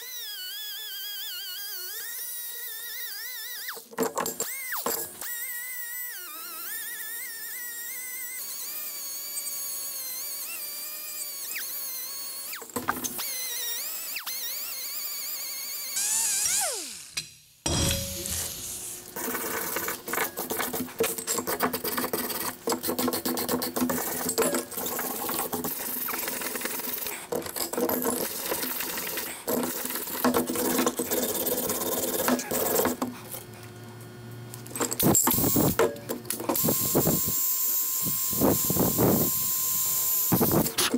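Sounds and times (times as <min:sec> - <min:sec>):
air die grinder whining: 0:34.8 - 0:40.9.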